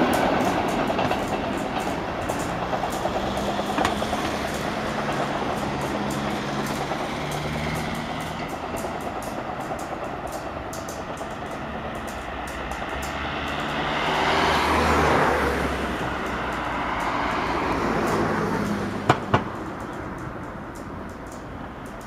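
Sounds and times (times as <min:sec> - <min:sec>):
car passing: 0:00.0 - 0:21.5
sharp knocks: 0:19.0 - 0:19.7.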